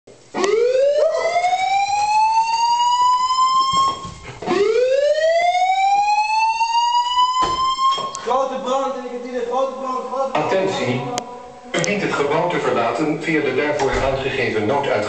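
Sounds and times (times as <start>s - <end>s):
fire alarm rising whoop tone: 0.4s - 8.3s.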